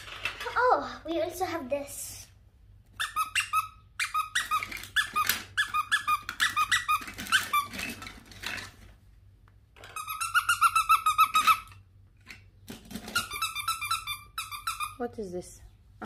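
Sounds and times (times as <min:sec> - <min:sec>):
squeeze toy squeaking: 0:02.9 - 0:08.1, 0:09.9 - 0:11.8, 0:13.0 - 0:15.0.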